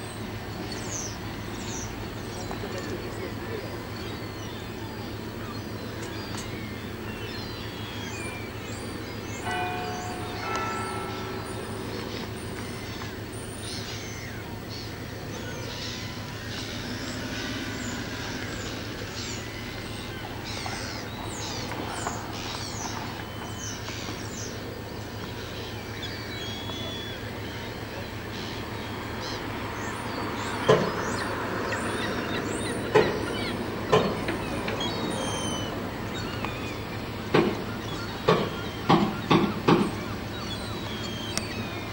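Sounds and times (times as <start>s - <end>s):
sharp knocks: 37.3s - 40.0s.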